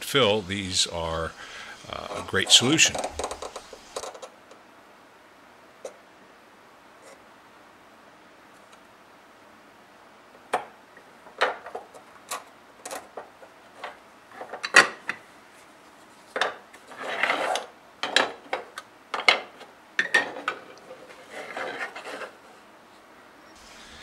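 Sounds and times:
plastic parts clicking and knocking: 0:02.1 - 0:04.4, 0:11.3 - 0:15.2, 0:17.6 - 0:20.7
scraping rub on workbench: 0:20.9 - 0:22.6.

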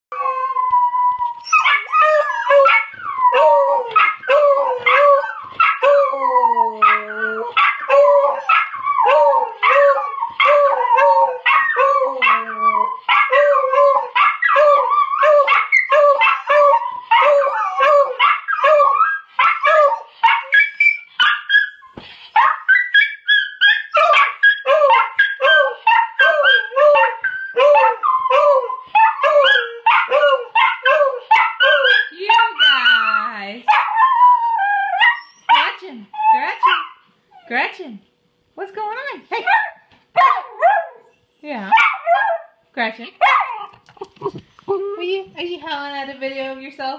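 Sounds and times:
dogs howling and yipping: 0:00.1 - 0:35.6, 0:41.7 - 0:42.6
recorded dog barking: 0:06.8 - 0:12.4, 0:13.1 - 0:21.7, 0:22.4 - 0:34.1, 0:34.9 - 0:35.8, 0:39.4 - 0:41.1, 0:41.7 - 0:42.6, 0:43.2 - 0:43.8.

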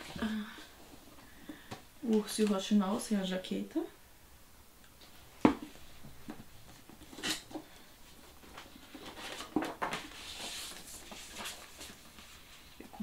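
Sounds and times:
paper dust jacket rustling: 0:08.2 - 0:12.8.

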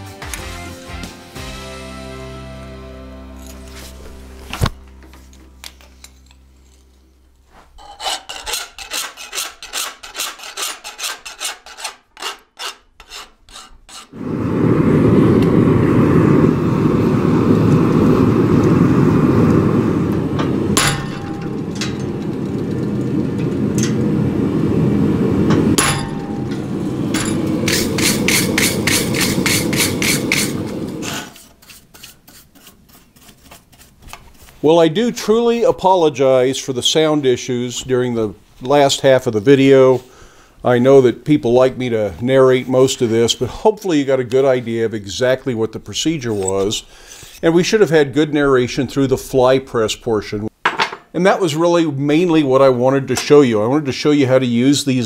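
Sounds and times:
wire brush scrubbing steel: 0:06.0 - 0:14.2, 0:25.8 - 0:34.6
gas forge roaring: 0:14.1 - 0:31.6.

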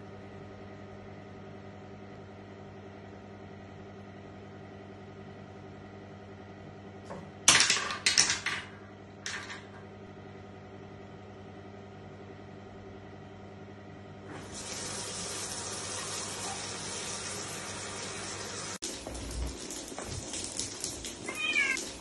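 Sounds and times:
water running into sink: 0:14.3 - 0:22.0
cat meowing: 0:21.2 - 0:22.0.

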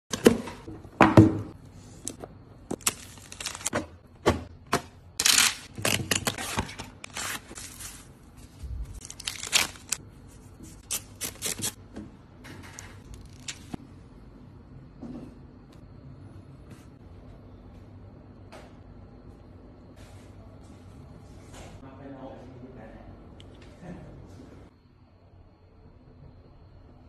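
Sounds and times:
plastic wrap crinkling: 0:02.7 - 0:03.7, 0:05.2 - 0:11.8
cardboard tear strip ripping: 0:05.2 - 0:08.0, 0:09.0 - 0:10.0, 0:10.8 - 0:11.8.

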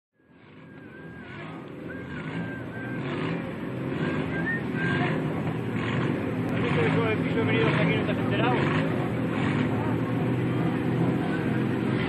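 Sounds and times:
wavering high whistle: 0:00.2 - 0:05.3
car engines running: 0:00.2 - 0:12.0.

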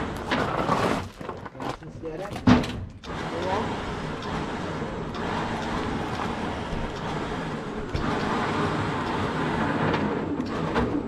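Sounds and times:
truck winch running: 0:02.6 - 0:11.0.

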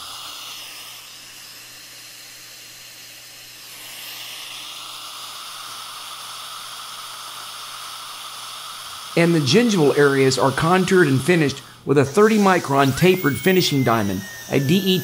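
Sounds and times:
steady airy hiss: 0:00.0 - 0:15.0
faint tone dipping in pitch: 0:12.2 - 0:15.0.

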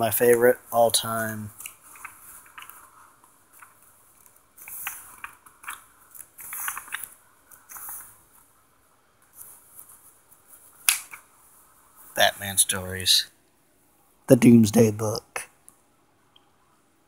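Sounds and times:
paper pages rustling: 0:00.2 - 0:08.5.

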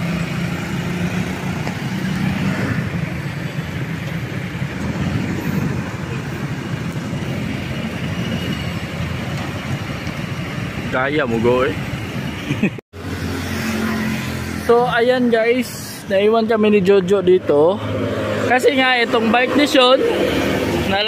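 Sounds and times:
idling engine hum: 0:00.0 - 0:21.0
street traffic: 0:00.0 - 0:21.0.

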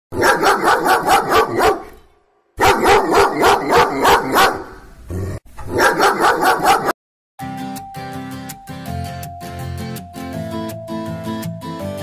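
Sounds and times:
dog barking: 0:00.1 - 0:02.0, 0:02.6 - 0:04.8, 0:05.6 - 0:07.0.

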